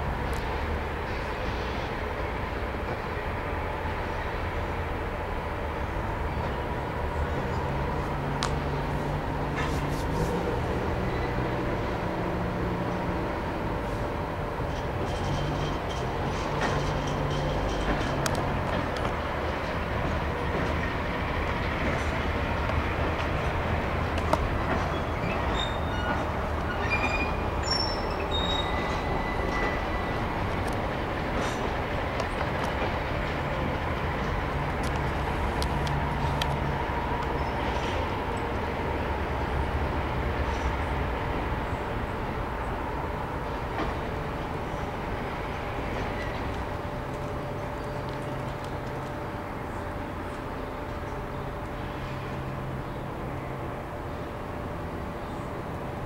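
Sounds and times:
locomotive engine drone: 0.0s - 56.0s
rail clicks: 0.0s - 56.0s
train low rumble: 0.0s - 56.0s
short high squeal: 25.1s - 30.2s.

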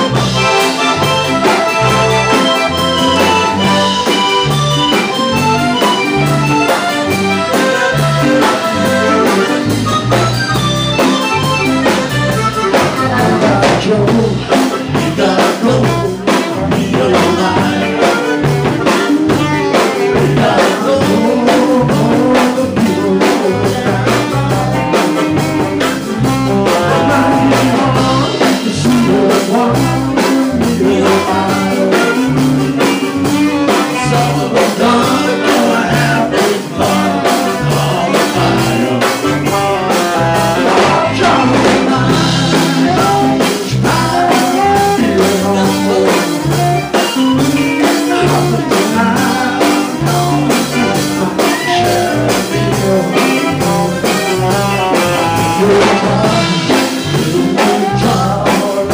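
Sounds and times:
saxophone: 0.0s - 13.7s, 36.7s - 45.2s
drum kit: 0.0s - 58.9s
live band playing upbeat song: 0.0s - 58.9s
repeating bass line: 0.0s - 58.9s.

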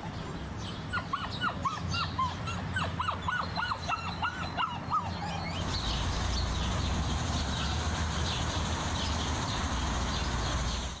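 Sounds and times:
small birds chirping: 0.0s - 11.0s
wolf pup whimpering: 0.9s - 5.6s.

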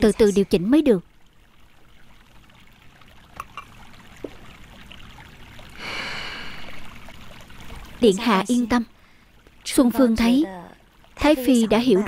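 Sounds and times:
liquid pouring into a cup: 1.1s - 8.1s.

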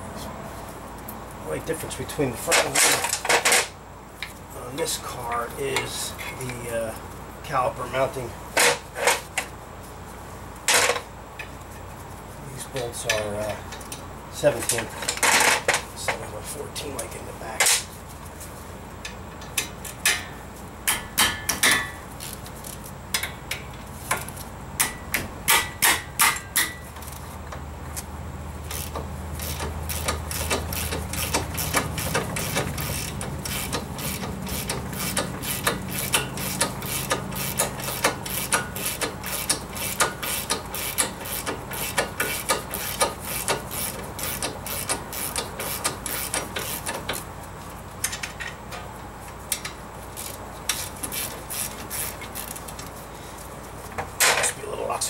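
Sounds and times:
ratchet wrench clicking: 28.7s - 47.2s, 49.5s - 52.9s.

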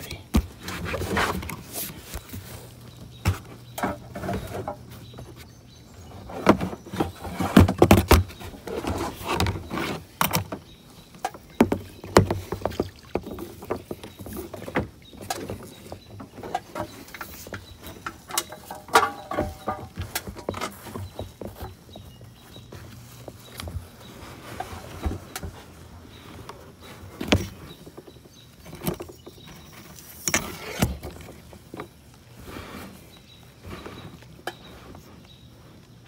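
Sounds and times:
paddle strokes in water: 10.8s - 28.4s
clicks and knocks: 16.5s - 20.8s.

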